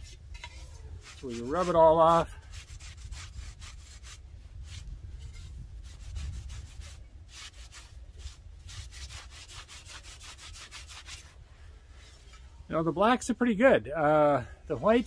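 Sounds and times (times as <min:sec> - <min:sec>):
scrubbing clay pot surface: 0:00.0 - 0:11.4.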